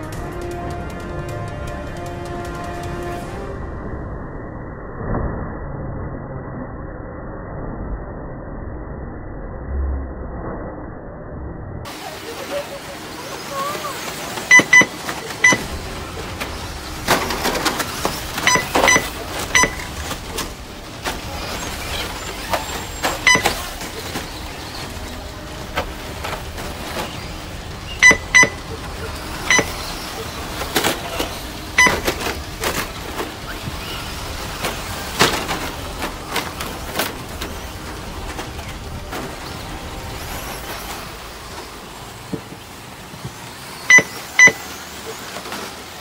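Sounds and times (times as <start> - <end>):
rc car motor whine: 13.8 - 42.0
short electronic beeps: 14.5 - 15.7, 18.4 - 20.0, 23.2 - 23.7, 28.0 - 28.7, 29.5 - 29.8, 31.8 - 32.0, 43.9 - 44.6.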